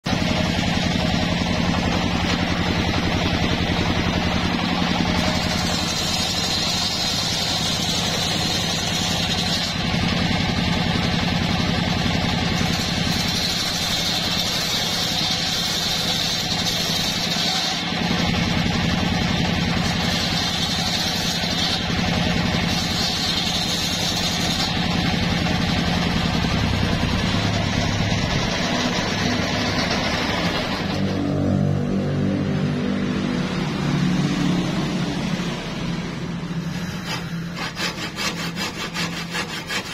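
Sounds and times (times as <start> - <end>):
circular saw motor hum: 0.0 - 39.9
saw cutting wood hiss: 0.1 - 11.3, 12.0 - 27.6, 36.6 - 39.9.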